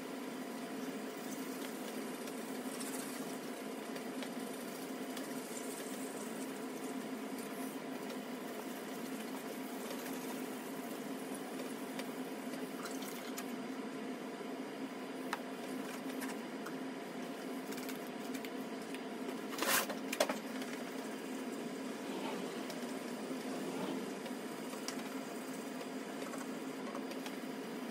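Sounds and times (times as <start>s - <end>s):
steady background hum: 0.0s - 27.9s.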